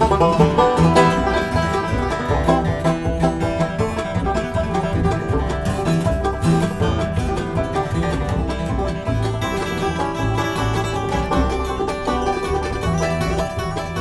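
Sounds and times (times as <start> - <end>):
picked banjo: 0.0 - 14.0
plucked upright bass: 0.0 - 14.0.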